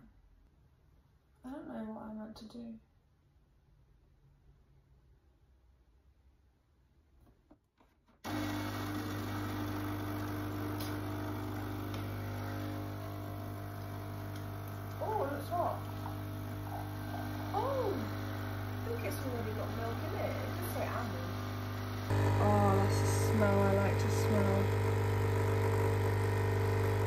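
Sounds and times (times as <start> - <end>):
coffee machine pump humming: 8.3 - 27.0.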